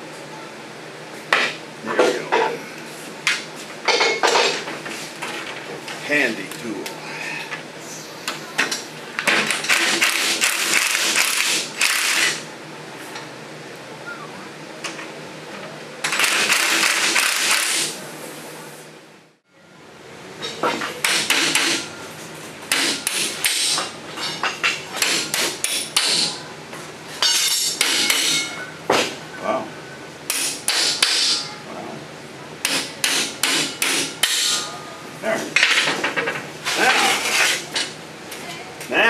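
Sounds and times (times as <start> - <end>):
hammer striking steel punch: 32.6 - 34.6.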